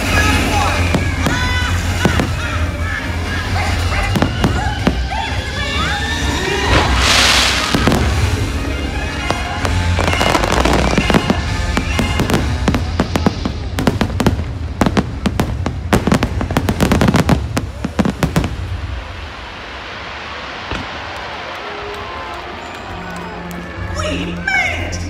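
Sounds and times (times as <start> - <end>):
loud music soundtrack: 0.0 - 16.2
fireworks cracking: 0.0 - 23.9.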